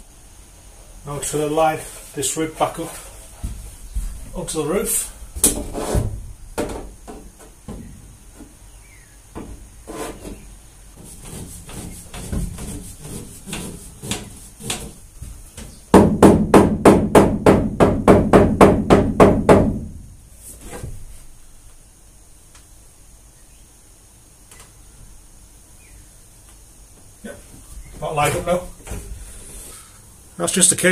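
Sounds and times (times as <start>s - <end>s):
knocks and bumps on metal: 5.4s - 8.6s, 9.3s - 9.7s, 13.4s - 20.1s.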